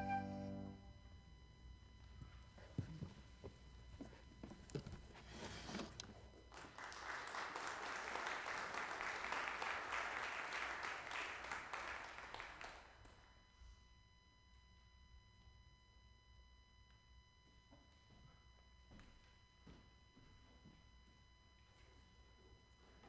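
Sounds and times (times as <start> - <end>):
congregation applauding: 6.5 - 13.3.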